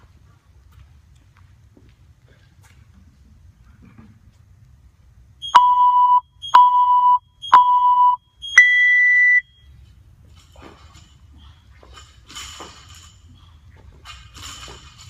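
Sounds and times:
short timer beeps: 0:05.4 - 0:09.5
long high-pitched beep: 0:05.4 - 0:09.6.

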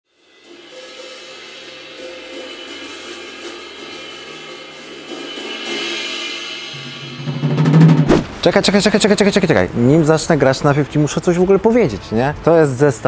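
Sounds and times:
hi-hat and cymbals: 0:00.1 - 0:09.5.

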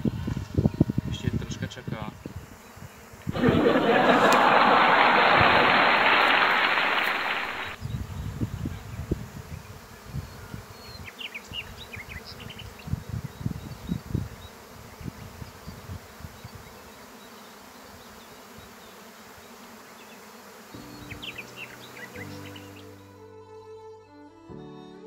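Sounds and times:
bees buzzing: 0:00.0 - 0:24.5.

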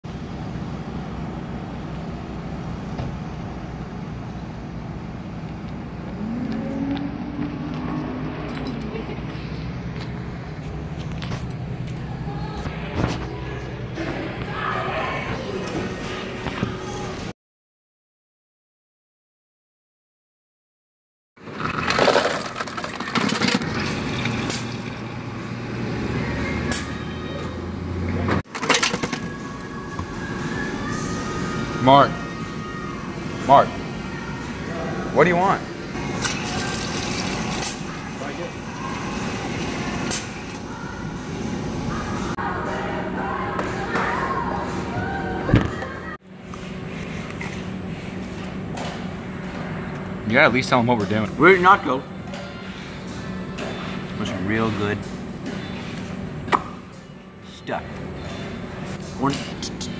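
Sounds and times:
low machine hum: 0:00.1 - 0:17.3
low rumble of road traffic: 0:21.4 - 0:29.2.

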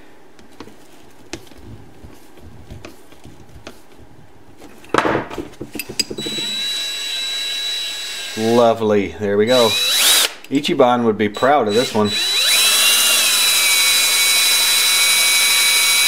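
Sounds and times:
cordless drill whining: 0:06.2 - 0:08.7, 0:09.5 - 0:10.4, 0:11.3 - 0:16.0.

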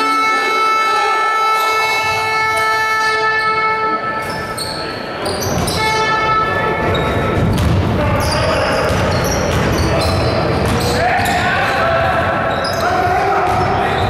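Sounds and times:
crowd din: 0:00.0 - 0:14.0
players' voices: 0:00.0 - 0:14.0
basketball bouncing on court: 0:05.4 - 0:05.9, 0:06.7 - 0:11.5, 0:12.6 - 0:14.0.

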